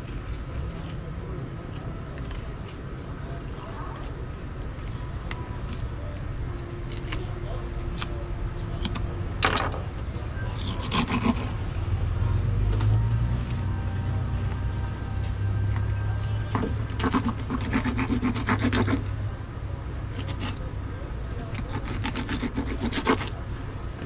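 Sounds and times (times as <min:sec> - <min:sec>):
knife scraping fish skin: 0:06.9 - 0:07.3, 0:10.6 - 0:11.6, 0:16.5 - 0:19.1, 0:20.1 - 0:20.6, 0:21.5 - 0:23.4.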